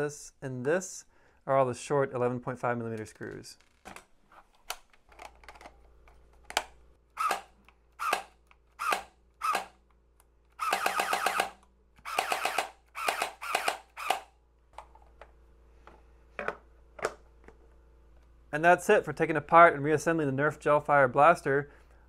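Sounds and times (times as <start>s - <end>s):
gel blaster gearbox firing: 10.6s - 14.2s.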